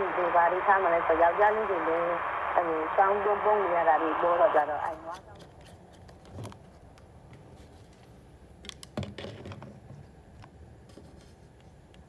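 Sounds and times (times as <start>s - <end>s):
low background hiss: 0.0s - 5.5s.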